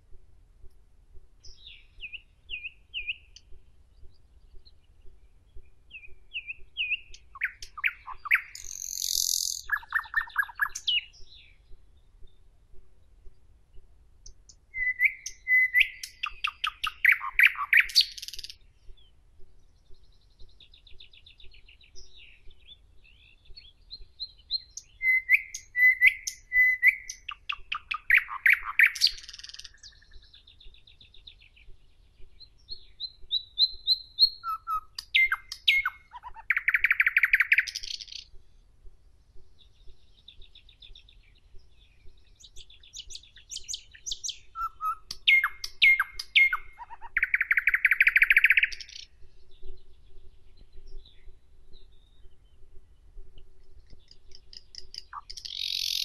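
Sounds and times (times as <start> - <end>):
nightingale singing: 1.1 - 56.0.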